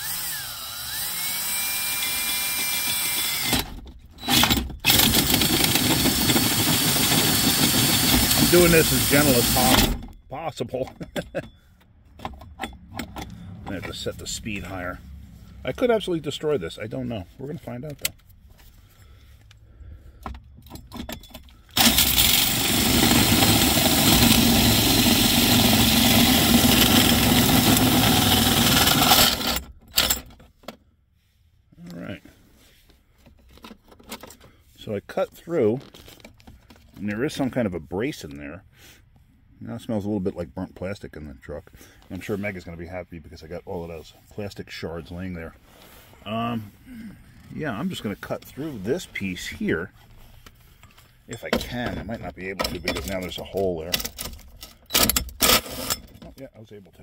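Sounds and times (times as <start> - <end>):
cordless drill motor whine: 0.0 - 9.9, 21.8 - 29.6
hole saw scraping plastic: 4.3 - 9.8.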